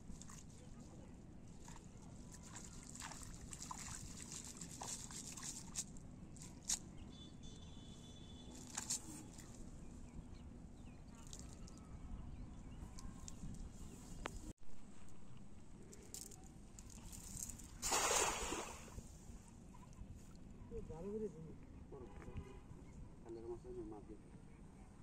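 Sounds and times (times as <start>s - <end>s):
water dripping and sloshing: 0.1s - 0.6s, 1.6s - 6.7s.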